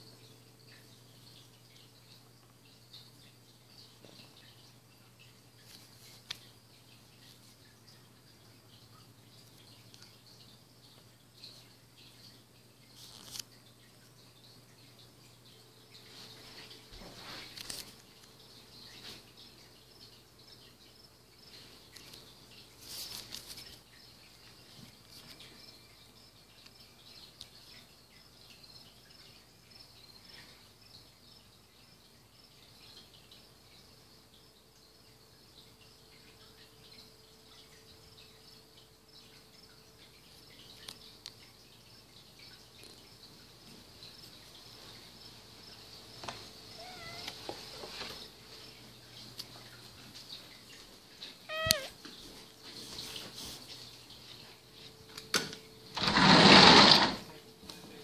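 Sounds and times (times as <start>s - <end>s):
insects chirping: 0.0s - 58.0s
high-pitched hiss: 44.0s - 48.9s
cat meowing: 46.7s - 47.4s, 51.4s - 52.0s.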